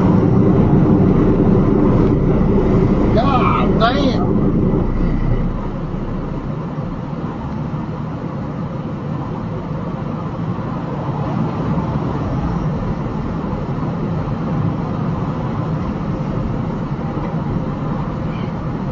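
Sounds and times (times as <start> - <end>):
truck driving at highway speed: 0.0 - 18.9.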